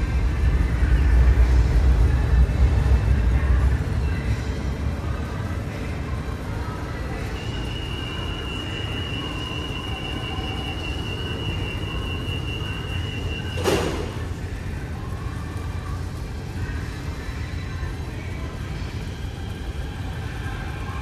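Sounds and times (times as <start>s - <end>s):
steady high-pitched tone: 0.0s - 14.0s
train low rumble: 0.0s - 21.0s.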